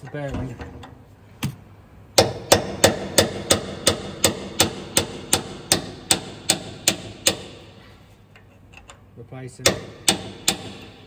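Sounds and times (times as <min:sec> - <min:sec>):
hammer striking metal tool: 0:09.7 - 0:11.0.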